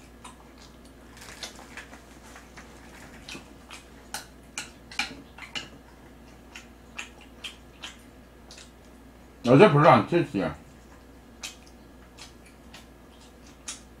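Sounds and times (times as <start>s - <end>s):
wet mouth clicks from chewing: 3.0s - 9.0s, 10.8s - 14.0s.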